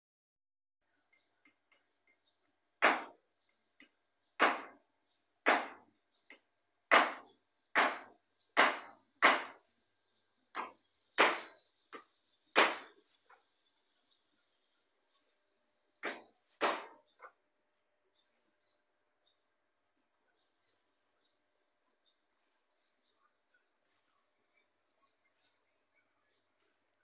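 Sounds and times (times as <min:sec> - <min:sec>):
sharp knocks with short ring: 0:06.9 - 0:09.6, 0:10.6 - 0:13.0.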